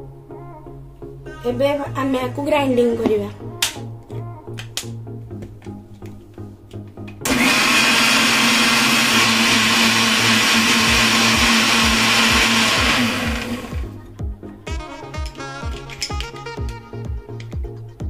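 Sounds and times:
mixer grinder motor running: 0:07.2 - 0:14.0.

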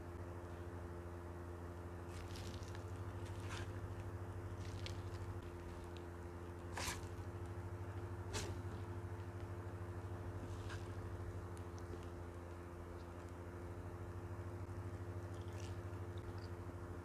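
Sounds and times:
steady low hum: 0:00.0 - 0:17.0
fingers mixing food squishing: 0:02.1 - 0:08.8.

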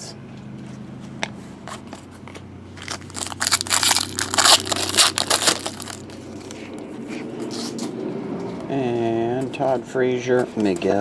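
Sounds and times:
foil wrappers crinkling: 0:02.8 - 0:06.6.

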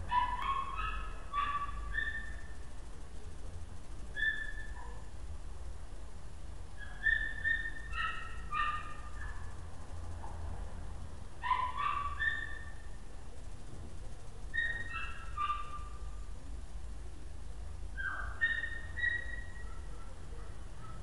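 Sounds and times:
dog yelping and whining: 0:06.8 - 0:09.0, 0:14.6 - 0:15.9, 0:18.0 - 0:19.8.

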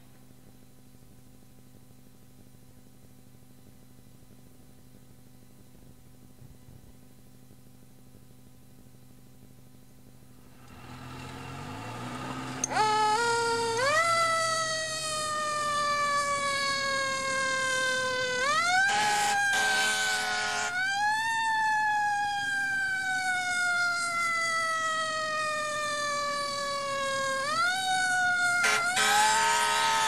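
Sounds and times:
siren wailing: 0:11.6 - 0:30.0.

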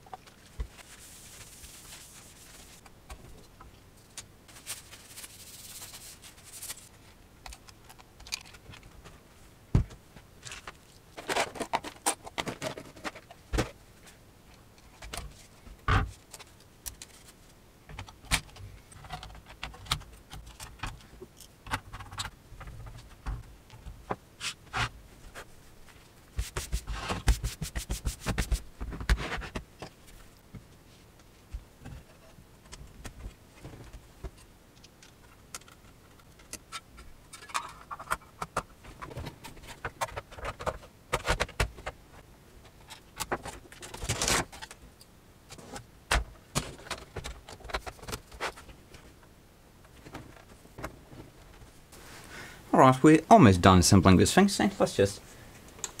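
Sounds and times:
monitor parts clicking and rattling: 0:04.5 - 0:09.2, 0:10.4 - 0:13.8, 0:14.5 - 0:24.0, 0:31.8 - 0:42.0, 0:42.6 - 0:44.8, 0:45.5 - 0:49.1.

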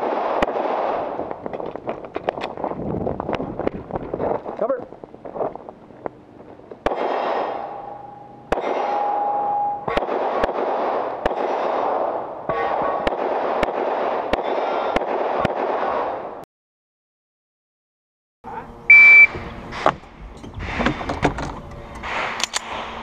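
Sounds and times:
pistol shots with ringing: 0:06.8 - 0:16.2.

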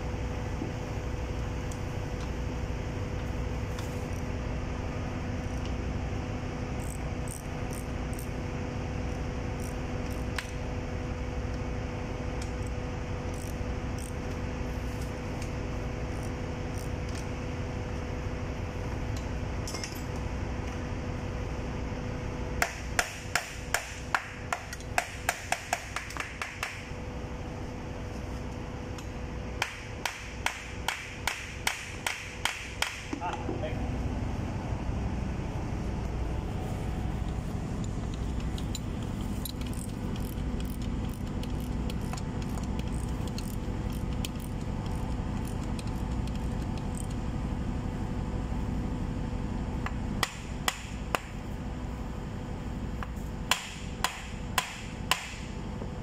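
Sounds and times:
machinery hum: 0:00.0 - 0:56.0
spanner metallic clicks: 0:06.8 - 0:08.4, 0:09.1 - 0:10.6, 0:13.3 - 0:14.3, 0:37.2 - 0:47.2.

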